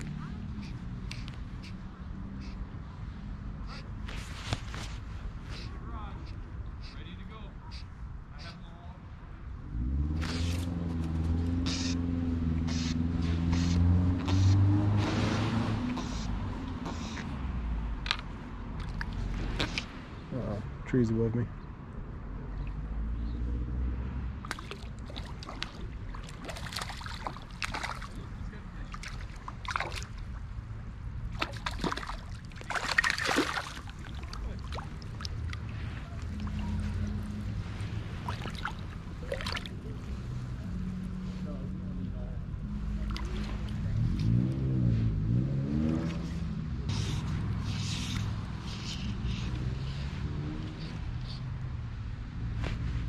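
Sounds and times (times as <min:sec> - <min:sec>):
vehicle engine rumble: 0:00.0 - 0:53.0
river water splashing: 0:10.1 - 0:17.3, 0:18.6 - 0:20.2, 0:24.4 - 0:41.2, 0:42.6 - 0:44.7
short hissing noises: 0:12.7 - 0:14.6, 0:46.9 - 0:50.2
loud splash: 0:24.4 - 0:28.2, 0:28.9 - 0:30.4, 0:31.3 - 0:36.6, 0:38.1 - 0:39.8.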